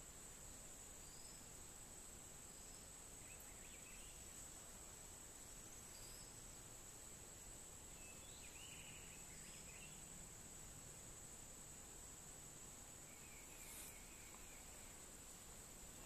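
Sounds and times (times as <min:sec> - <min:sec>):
faint bird chirps: 0:00.9 - 0:01.6, 0:02.4 - 0:04.5, 0:05.4 - 0:06.6, 0:07.8 - 0:10.3, 0:12.9 - 0:16.0.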